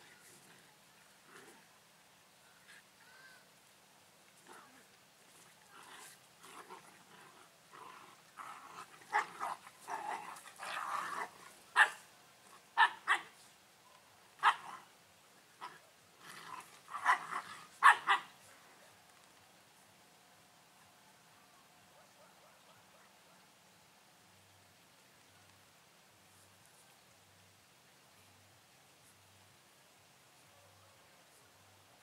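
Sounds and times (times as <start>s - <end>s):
dogs growling: 4.4s - 11.6s, 15.6s - 18.2s
dogs barking sharply: 14.4s - 14.8s, 17.0s - 18.3s.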